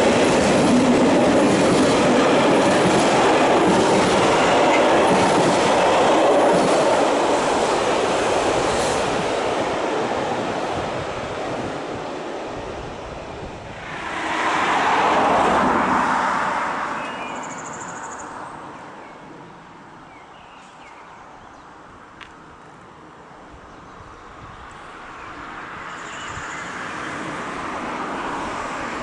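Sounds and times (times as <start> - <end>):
vehicle passing: 13.7 - 17.8.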